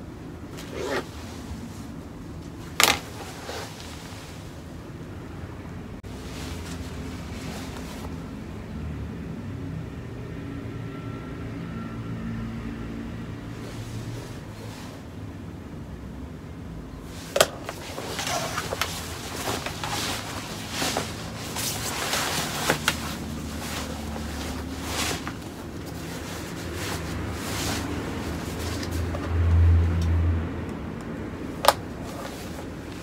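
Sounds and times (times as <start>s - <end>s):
wetsuit rustling and rubbing: 0.6s - 4.7s, 6.0s - 8.2s, 13.5s - 15.1s, 17.1s - 29.2s, 31.9s - 33.0s.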